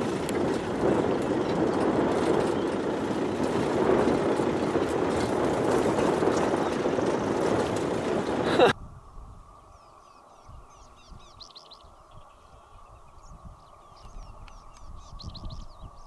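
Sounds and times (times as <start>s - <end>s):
off-road vehicle engine and road noise: 0.0s - 8.8s.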